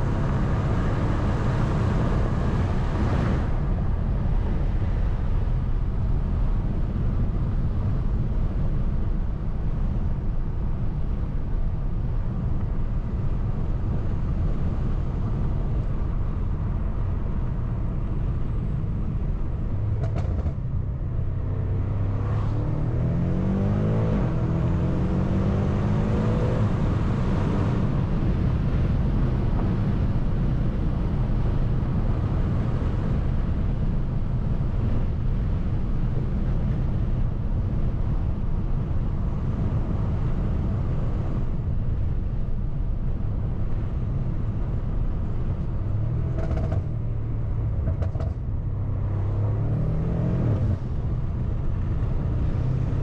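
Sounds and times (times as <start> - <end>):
road noise: 0.0 - 53.0
car engine accelerating: 19.6 - 30.1, 44.4 - 53.0.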